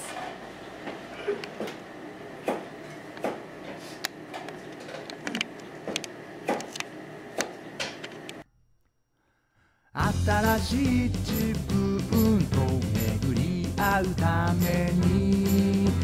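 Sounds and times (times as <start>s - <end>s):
kitchen background noise: 0.0s - 8.4s.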